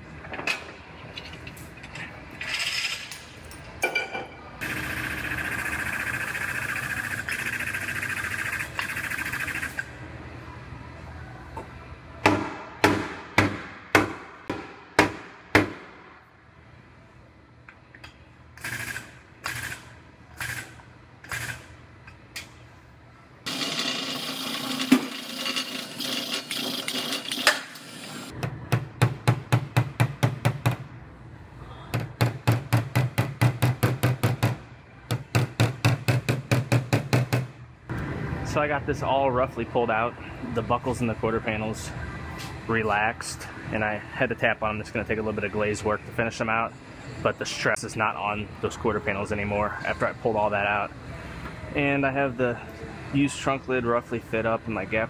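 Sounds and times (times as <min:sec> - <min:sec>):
hammer striking car panel: 0:12.2 - 0:16.0.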